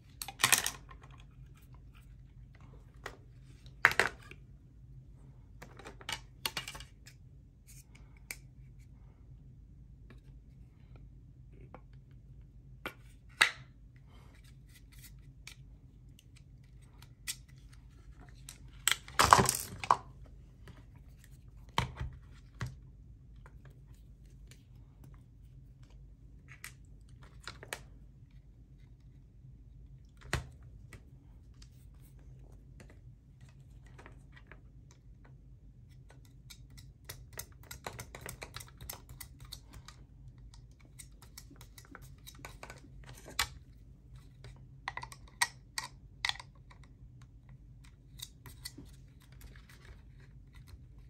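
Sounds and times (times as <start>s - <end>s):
plastic parts clicking and knocking: 0.1s - 1.3s, 5.6s - 7.2s, 18.3s - 20.8s, 36.0s - 50.8s.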